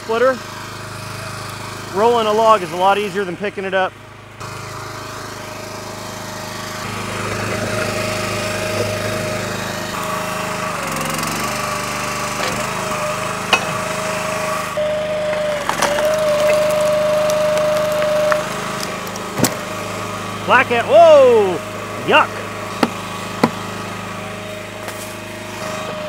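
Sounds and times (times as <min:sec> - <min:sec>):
log splitter engine whining: 0:00.0 - 0:26.0
firewood cracking and splintering: 0:15.4 - 0:19.8.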